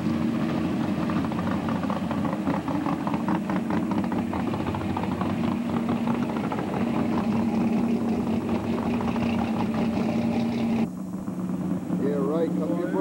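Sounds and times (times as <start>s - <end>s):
car engine idling: 0.0s - 13.0s
car engine rolling by: 0.0s - 13.0s.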